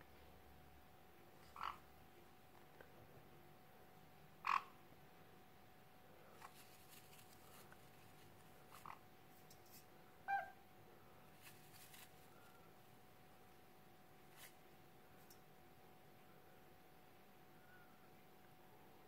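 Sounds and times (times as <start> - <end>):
parrot giving short calls: 10.3 - 10.6.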